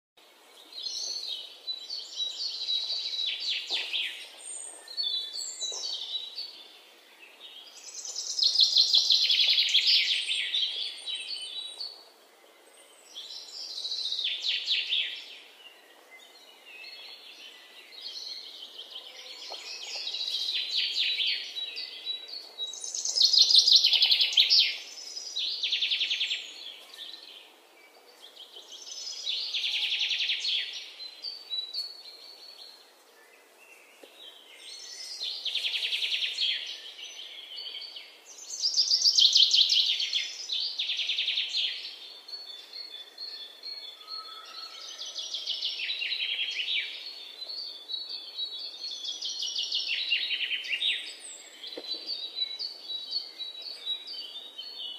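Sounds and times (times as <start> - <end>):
small birds chirping: 0.2 - 54.9.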